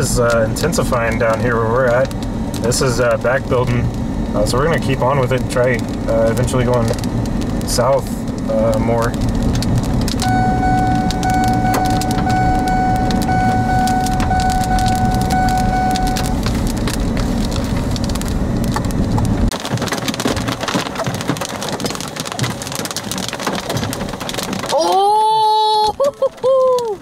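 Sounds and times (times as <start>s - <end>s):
hail clattering on vehicle: 0.0s - 27.0s
road noise: 0.0s - 27.0s
steady high tone: 10.2s - 16.4s.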